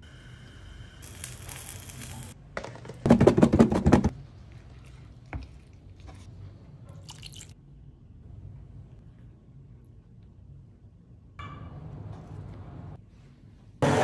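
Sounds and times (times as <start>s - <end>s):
eggplants sizzling on grill pan: 1.0s - 2.4s.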